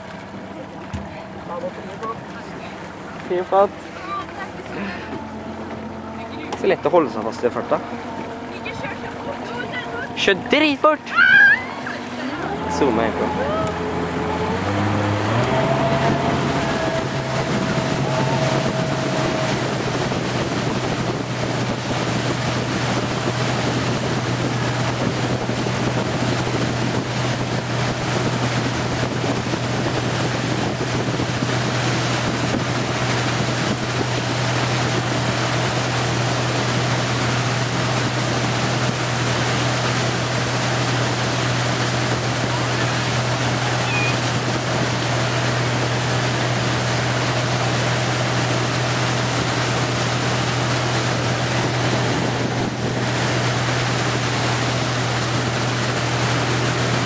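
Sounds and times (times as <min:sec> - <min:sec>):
motorboat engine humming: 0:00.0 - 0:57.0
water rushing from wake: 0:00.0 - 0:57.0
wind on microphone: 0:11.5 - 0:57.0.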